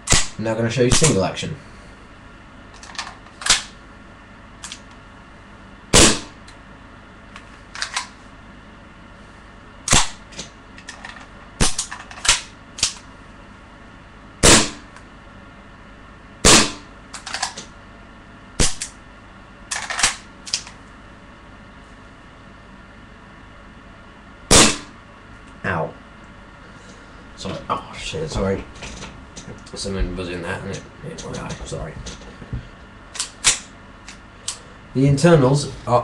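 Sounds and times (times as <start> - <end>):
airsoft pistol shots: 0.1 - 1.2, 5.9 - 6.4, 9.9 - 10.2, 11.6 - 12.5, 14.4 - 14.9, 16.4 - 16.9, 18.6 - 18.9, 24.5 - 24.9.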